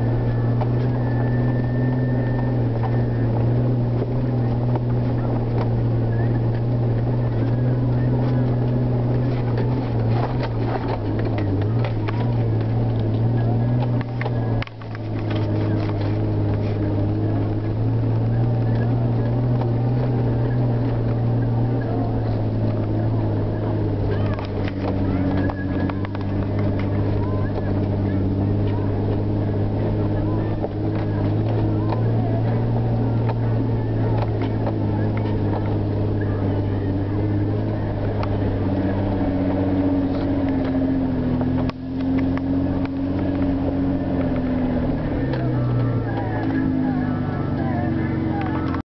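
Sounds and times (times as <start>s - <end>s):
car engine running under load: 0.0s - 48.9s.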